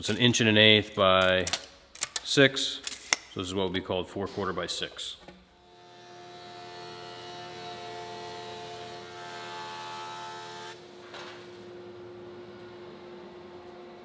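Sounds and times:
machine hum: 5.2 - 14.0
jointer cutting wood: 5.6 - 11.0.

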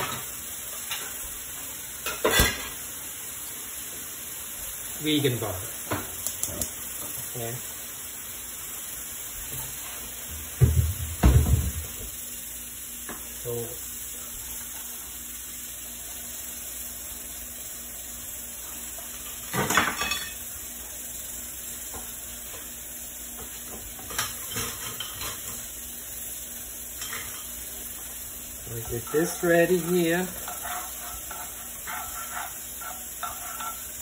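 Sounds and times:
faint steady hiss: 0.0 - 34.0
dishes and utensils clattering: 2.0 - 2.8, 19.4 - 20.4, 23.8 - 25.6, 27.0 - 27.6, 28.7 - 34.0.

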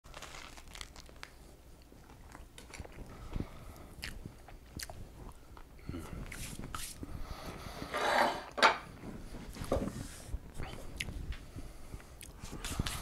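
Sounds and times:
crunchy chewing: 0.1 - 6.9.

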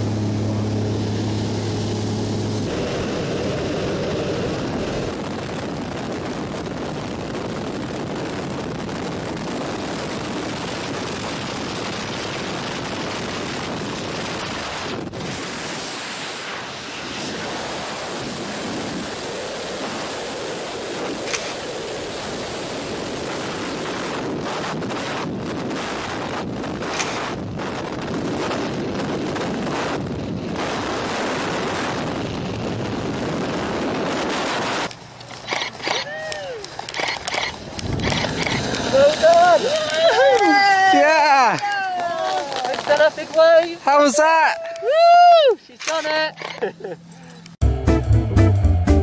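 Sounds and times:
light aircraft engine droning: 0.0 - 6.7
wind buffeting microphone: 0.0 - 15.8, 17.0 - 45.3.

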